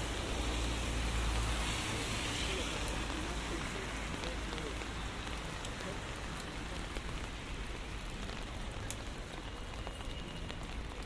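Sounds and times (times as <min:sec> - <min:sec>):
steady rain hiss: 0:00.0 - 0:11.0.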